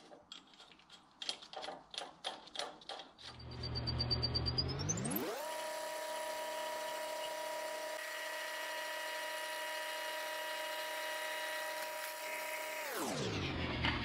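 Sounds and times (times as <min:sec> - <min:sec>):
milling machine whining: 0:03.4 - 0:14.0.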